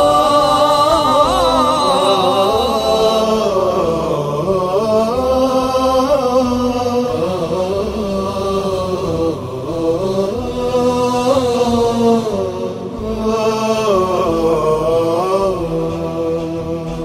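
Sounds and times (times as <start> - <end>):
voices chanting slow melody: 0.0 - 16.0.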